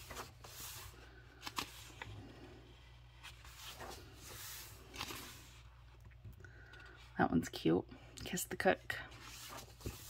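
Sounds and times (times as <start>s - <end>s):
book pages rustling: 0.0s - 7.1s, 9.1s - 10.0s.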